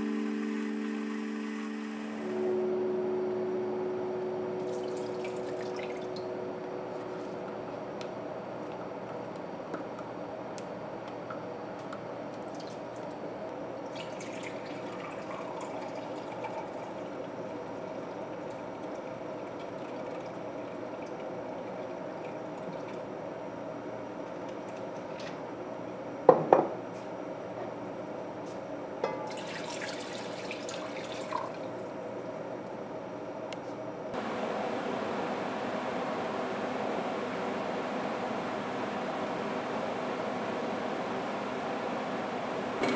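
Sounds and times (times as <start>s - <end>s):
steady low hum: 0.0s - 19.9s, 31.7s - 42.9s
liquid pouring splashing: 13.9s - 16.8s, 29.3s - 31.7s.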